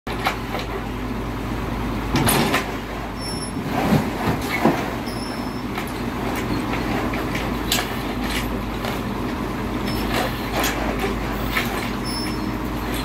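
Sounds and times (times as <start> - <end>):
excavator engine running: 0.1 - 13.0
debris crunching and knocking: 3.6 - 5.0
high squeaks: 4.4 - 5.7, 11.4 - 13.0.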